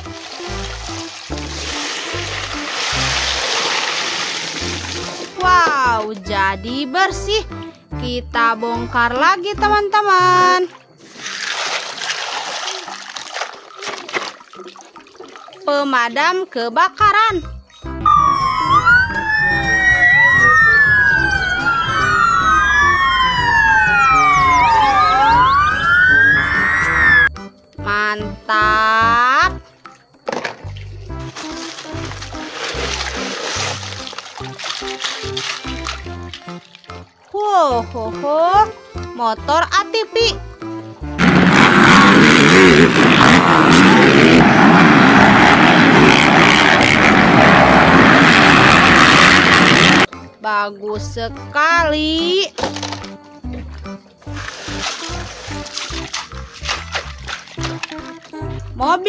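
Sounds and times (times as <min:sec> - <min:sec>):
fire engine sirens wailing: 0:18.0 - 0:27.4, 0:41.2 - 0:50.1
quad bike engines revving: 0:41.2 - 0:50.1.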